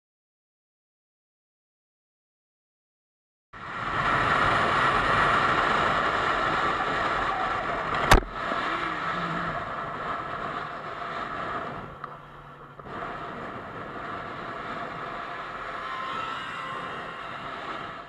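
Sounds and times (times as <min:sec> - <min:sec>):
motorcycle engine at speed: 0:03.6 - 0:18.0
wind rushing: 0:03.6 - 0:18.0.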